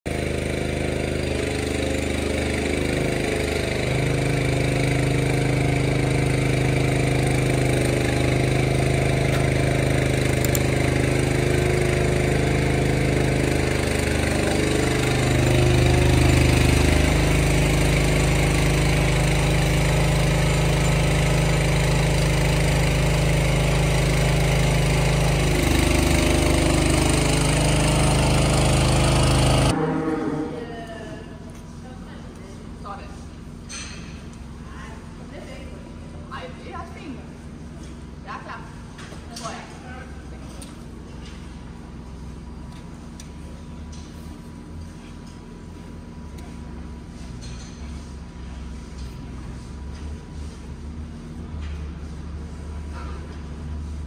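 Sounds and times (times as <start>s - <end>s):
motor humming: 0.1s - 30.7s.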